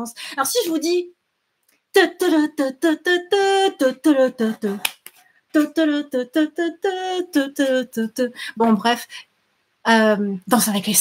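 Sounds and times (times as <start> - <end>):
woman humming a tune: 5.6 - 8.3.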